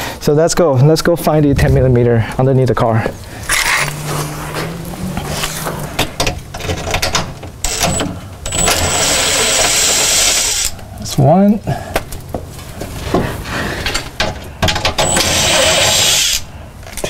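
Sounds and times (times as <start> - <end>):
low hum: 1.3 - 8.3.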